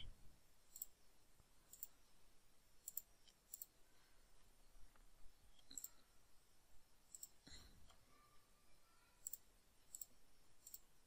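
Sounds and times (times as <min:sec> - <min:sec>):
computer mouse clicks: 0:01.7 - 0:02.0, 0:02.8 - 0:03.7, 0:05.6 - 0:06.0, 0:07.1 - 0:07.4, 0:09.2 - 0:10.9.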